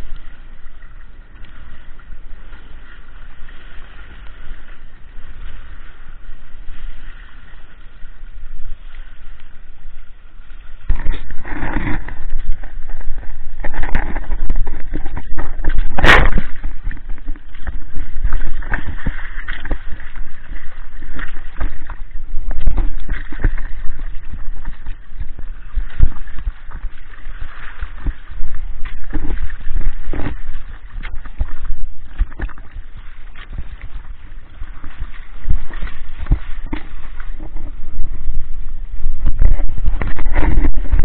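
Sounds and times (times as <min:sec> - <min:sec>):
water rushing against hull: 0:00.0 - 0:41.0
water splashes: 0:00.0 - 0:41.0.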